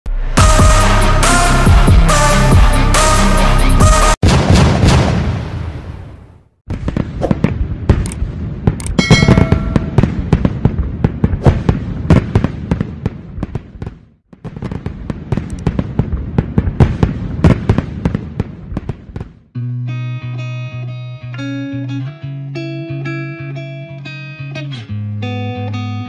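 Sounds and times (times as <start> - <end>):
fireworks popping and crackling: 6.7 - 19.4.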